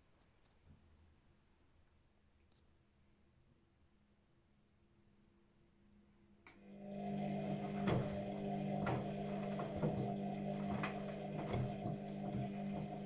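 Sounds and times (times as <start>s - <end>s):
washing machine motor humming: 6.6s - 13.0s
washing machine click: 7.1s - 13.0s.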